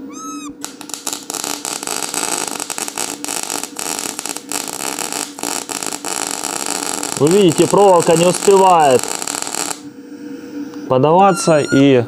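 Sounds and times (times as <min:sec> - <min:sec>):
welding arc crackling and sputtering: 0:00.6 - 0:09.9.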